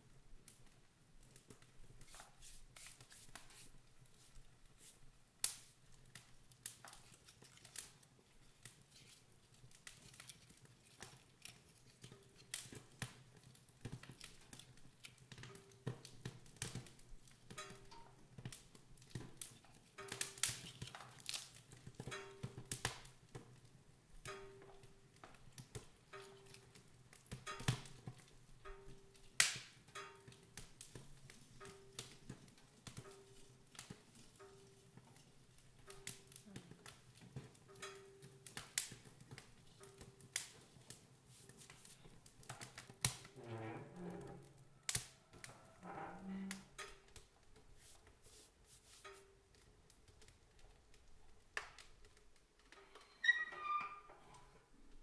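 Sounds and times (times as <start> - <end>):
wood fire crackling and popping: 0.0 - 53.8.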